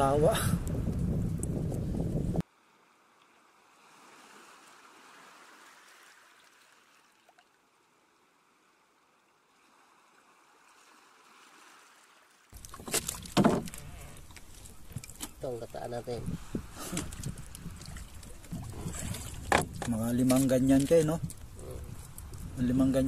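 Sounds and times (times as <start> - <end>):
water lapping around boat: 2.5 - 23.0
sharp knocks: 12.7 - 13.8.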